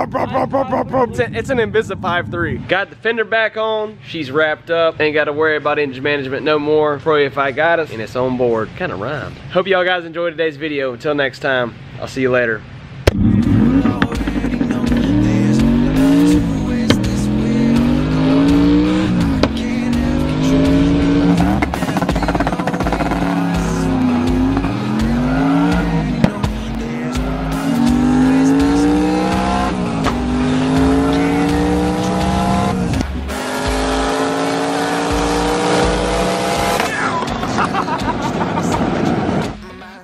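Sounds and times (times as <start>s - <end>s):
car engine revving: 13.0s - 39.6s
background music with beat: 13.1s - 40.0s.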